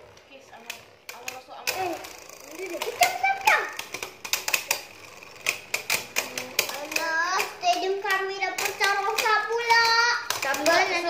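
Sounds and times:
spinning tops clacking: 0.0s - 11.0s
child's gliding voice: 1.2s - 3.9s, 6.2s - 11.0s.

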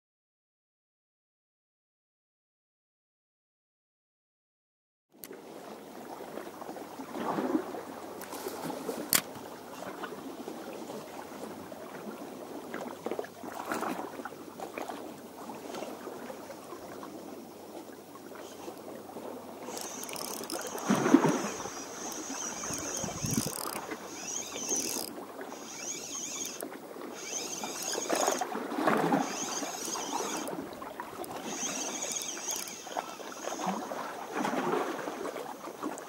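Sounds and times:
water lapping against rocks: 5.4s - 36.0s
sharp click: 19.7s - 28.4s, 31.2s - 33.6s.

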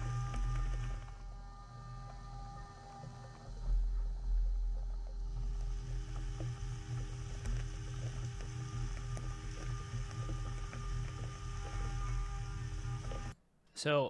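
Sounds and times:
milling machine spindle hum: 0.0s - 13.4s.

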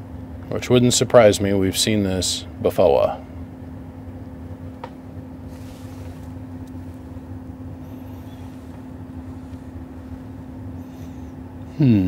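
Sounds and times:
electrical hum with low drone: 0.0s - 12.0s.

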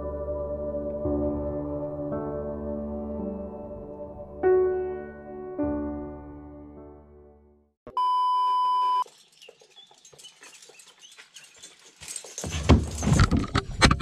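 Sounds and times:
electronic beep: 7.9s - 9.0s.

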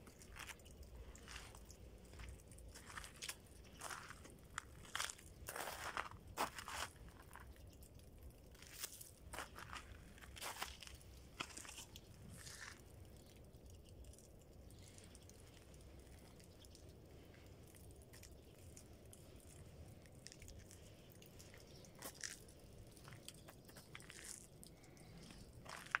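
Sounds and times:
faint low rumble: 0.0s - 26.0s
footsteps crunching on icy snow: 0.1s - 7.5s, 8.6s - 12.8s, 18.1s - 24.5s, 25.1s - 26.0s.

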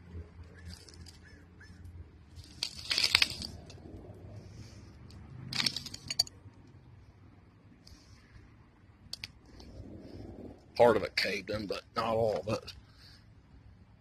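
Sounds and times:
soil crumbling into hole: 2.4s - 3.8s.

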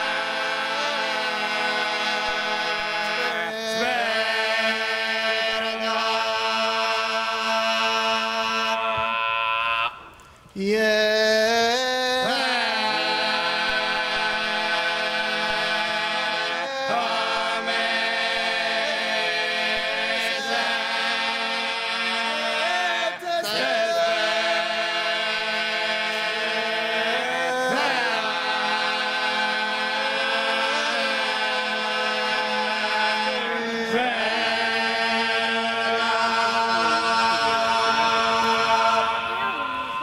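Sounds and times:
choir holding long notes: 0.0s - 40.0s
low drone: 35.7s - 40.0s.

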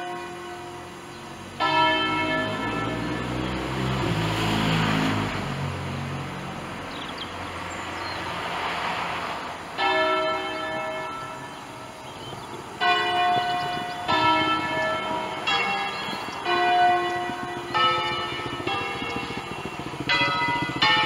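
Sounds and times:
church bells ringing: 0.0s - 4.6s, 9.8s - 21.0s.

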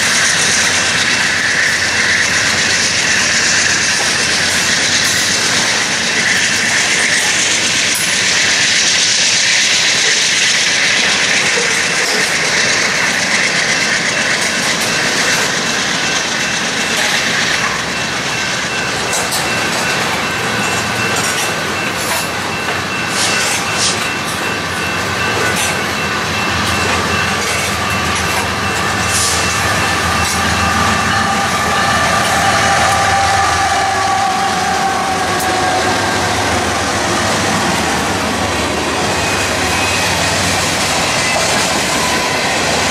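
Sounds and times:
train wheels clickety-clack on rails: 0.0s - 42.9s
wheel squeal: 0.0s - 42.9s.

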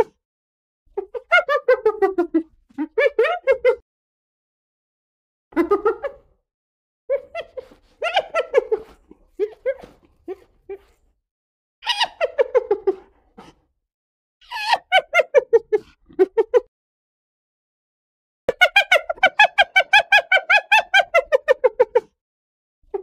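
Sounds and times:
hyena giggling: 7.1s - 11.0s, 11.9s - 13.6s.

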